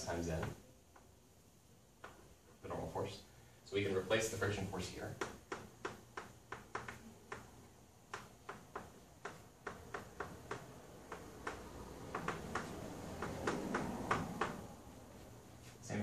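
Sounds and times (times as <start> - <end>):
chalk clicking on blackboard: 5.2 - 14.7.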